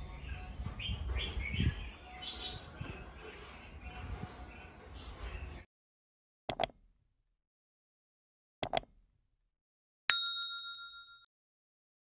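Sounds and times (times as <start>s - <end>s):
quick double clicks: 6.5s - 6.8s, 8.6s - 8.9s
bell-like notification ding: 10.1s - 11.3s.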